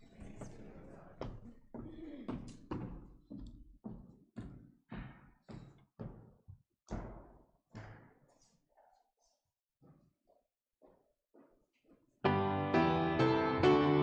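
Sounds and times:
echoing footsteps on hard floor: 0.2 - 8.4, 9.8 - 12.1.

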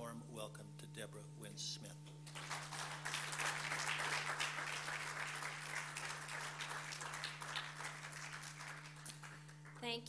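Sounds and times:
low steady hum: 0.0 - 10.0
audience applauding: 2.3 - 9.8.

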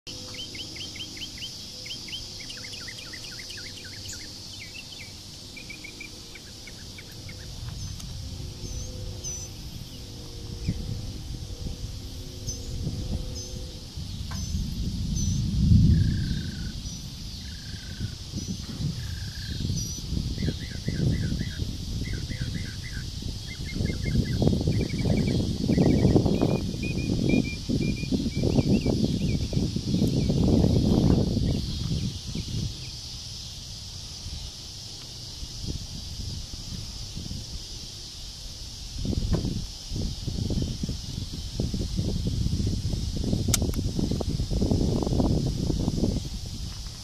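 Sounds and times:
higher whistled bird calls: 0.1 - 8.0, 12.4 - 33.0
birds chirping: 0.1 - 36.3
high insect buzz: 0.1 - 47.0
high-pitched hiss: 0.1 - 47.0
wind buffeting microphone: 0.1 - 47.0
low rumbling noise: 3.2 - 23.4.

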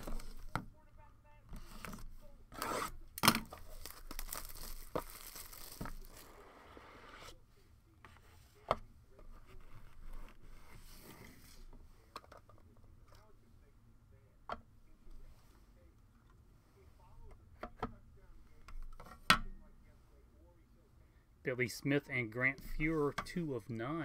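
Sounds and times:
plastic wrapping crinkling and tearing: 3.4 - 6.4.

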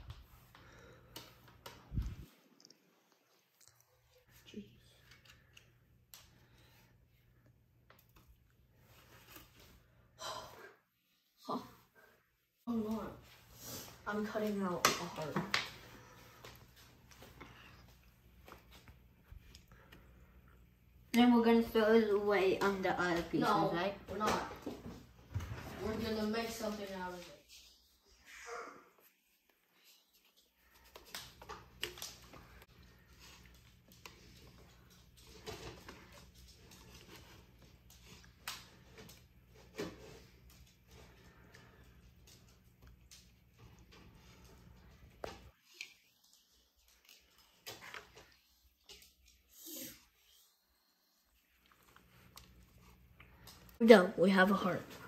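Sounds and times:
sigh-like voice sound: 28.2 - 29.0.

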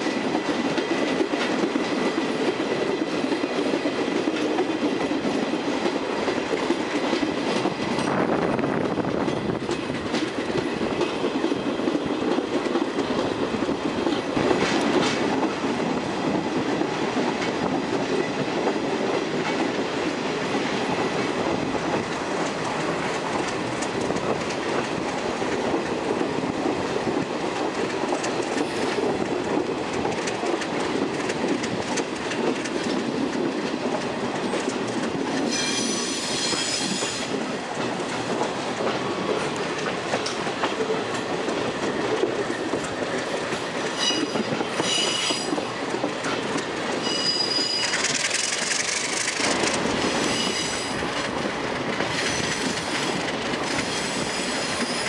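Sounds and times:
train wheels rumbling on rails: 0.0 - 55.0
wheels squealing: 47.0 - 49.2.

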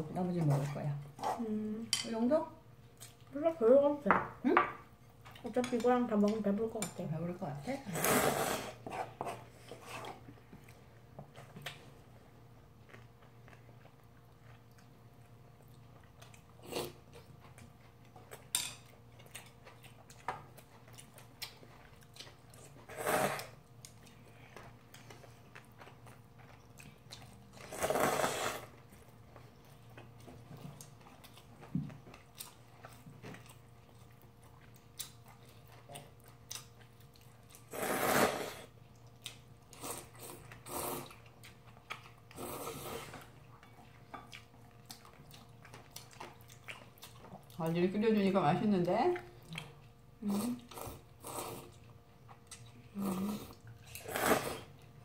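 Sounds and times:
soft chewing: 2.7 - 3.5, 4.9 - 7.7, 8.7 - 37.8, 38.6 - 47.9, 48.8 - 55.0
noodles slurped: 22.8 - 23.6, 27.5 - 28.8, 37.6 - 38.8, 39.8 - 41.2, 52.9 - 54.8.

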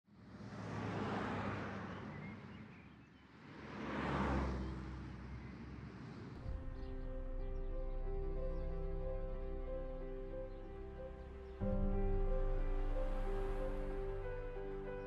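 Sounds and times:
vehicles passing by: 0.1 - 15.0
soft music: 6.4 - 15.0.

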